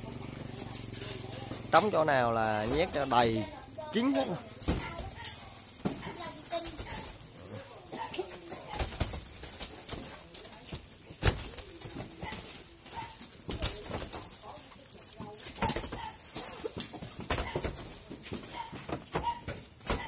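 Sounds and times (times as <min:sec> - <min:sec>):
plastic crinkling: 0:06.2 - 0:17.2.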